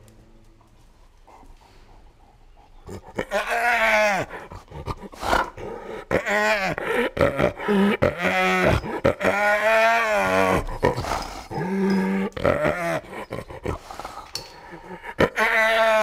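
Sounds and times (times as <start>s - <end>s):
hyena growling: 0.0s - 16.0s.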